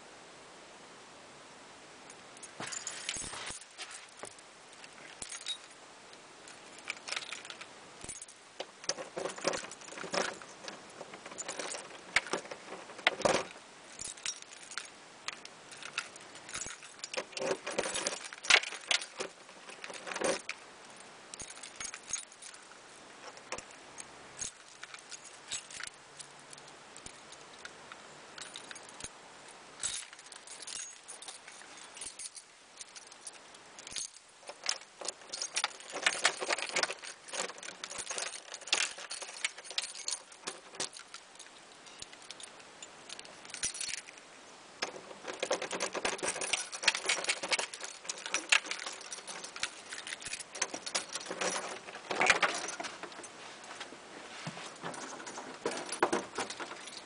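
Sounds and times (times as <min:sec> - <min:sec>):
keys jangling: 0:02.4 - 0:05.8, 0:06.4 - 0:27.8, 0:28.4 - 0:29.2, 0:29.8 - 0:44.2, 0:44.8 - 0:53.8, 0:54.7 - 0:57.0
key in door lock: 0:06.4 - 0:20.6, 0:29.8 - 0:44.2, 0:44.8 - 0:53.4, 0:54.8 - 0:57.0.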